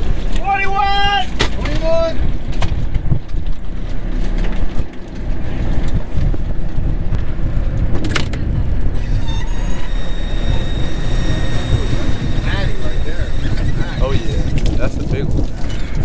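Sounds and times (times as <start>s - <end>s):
boat engine rumbling: 0.0s - 16.0s
wind: 0.0s - 16.0s
hydraulic winch whine: 9.0s - 14.7s.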